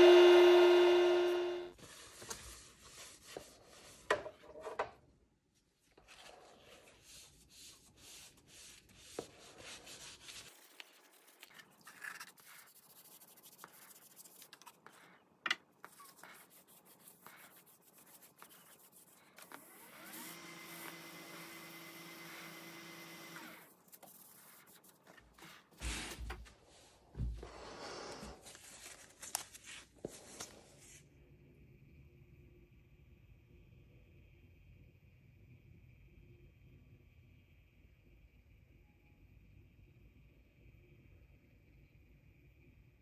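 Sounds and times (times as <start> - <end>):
lathe humming: 0.0 - 1.7
paper towel rubbing wood: 1.8 - 4.1, 6.0 - 15.2, 15.8 - 19.6.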